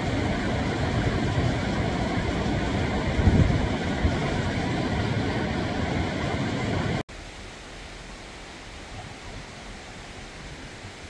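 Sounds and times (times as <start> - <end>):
water rushing over rocks: 0.0 - 11.0.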